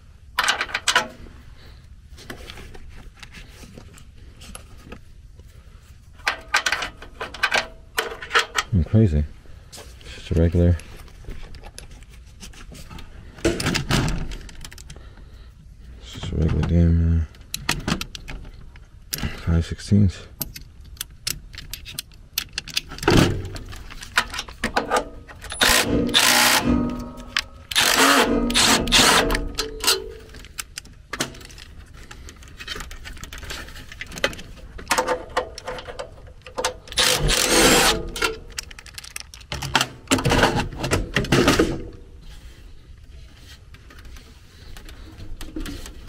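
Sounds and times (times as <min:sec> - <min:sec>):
tool and metal panel rattling: 0:00.4 - 0:01.2, 0:06.2 - 0:08.8, 0:21.4 - 0:42.0
cordless drill running: 0:25.6 - 0:26.7, 0:27.7 - 0:29.2.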